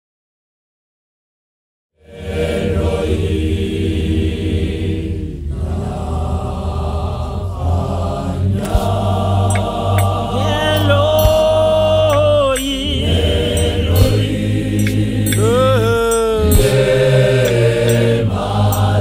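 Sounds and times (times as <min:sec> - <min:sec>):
gospel choir singing: 0:02.0 - 0:19.0
brief knock: 0:08.6 - 0:10.1.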